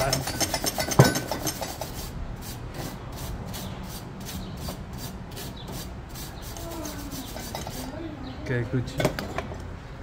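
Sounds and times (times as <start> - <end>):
stiff brush scrubbing metal: 0.0 - 8.0.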